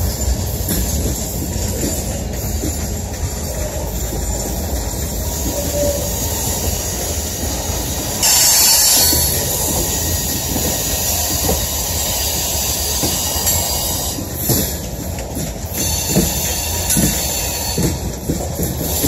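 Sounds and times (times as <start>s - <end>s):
wheel flanges squealing: 0.0s - 15.1s
train wheels rumbling on rail: 0.0s - 19.0s.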